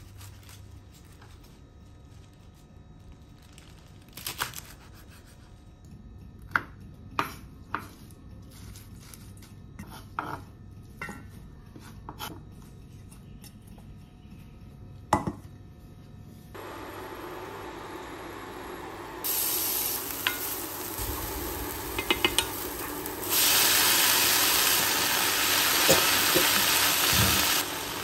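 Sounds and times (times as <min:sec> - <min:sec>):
oil hissing in a frying pan: 0:16.6 - 0:28.0.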